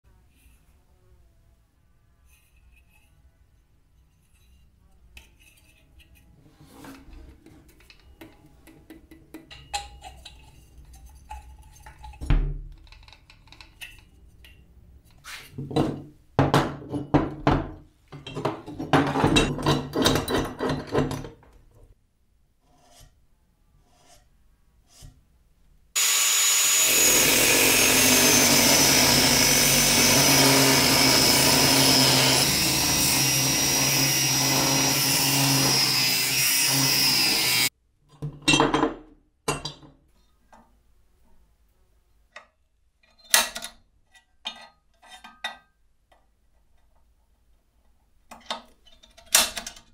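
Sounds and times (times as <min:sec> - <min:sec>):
power tool cutting metal: 0:26.0 - 0:37.7.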